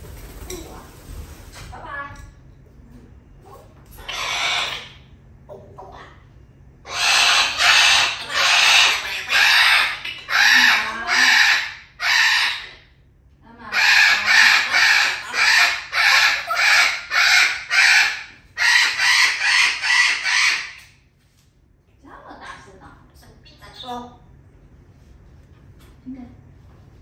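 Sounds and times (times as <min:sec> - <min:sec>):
parrot giving harsh calls: 0:04.0 - 0:05.1, 0:06.8 - 0:12.9, 0:13.7 - 0:21.0.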